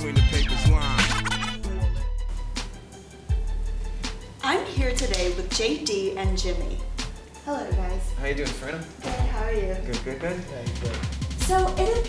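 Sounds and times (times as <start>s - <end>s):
music with a beat: 0.0s - 5.8s, 7.0s - 12.0s.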